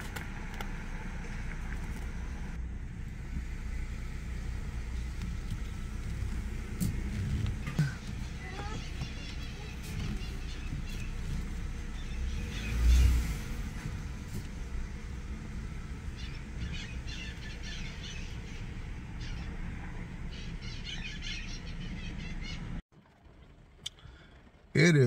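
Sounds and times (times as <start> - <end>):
low outdoor rumble: 0.0 - 25.0
small birds chirping: 4.4 - 22.8.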